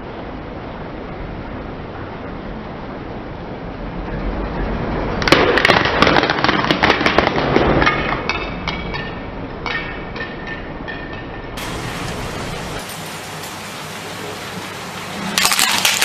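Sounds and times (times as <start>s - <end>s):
plastic shells cracking under tyre: 5.2s - 9.0s, 15.4s - 16.0s.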